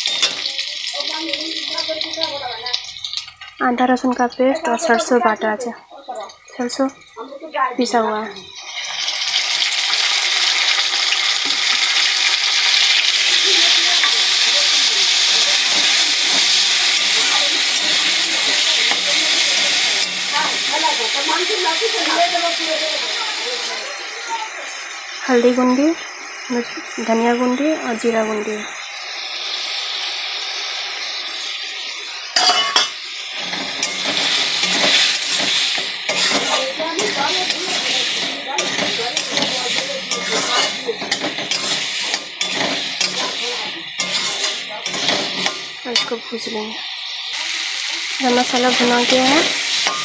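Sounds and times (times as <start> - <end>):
potatoes sizzling in hot oil: 0.0 - 50.0
spatula scraping pan: 32.4 - 46.4, 48.3 - 50.0.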